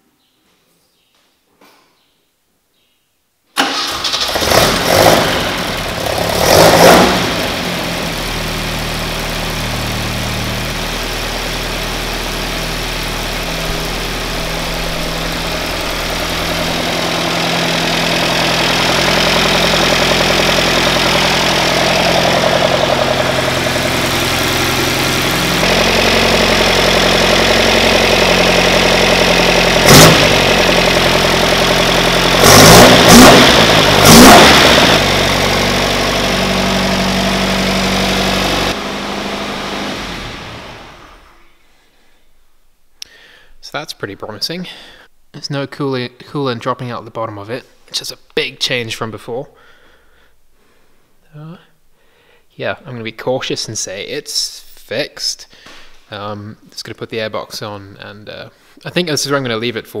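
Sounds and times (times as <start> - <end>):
car engine starting and idling: 3.6 - 41.5.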